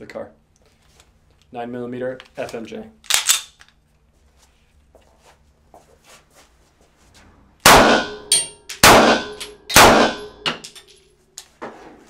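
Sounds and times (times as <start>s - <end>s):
handgun shots: 7.7s - 10.8s.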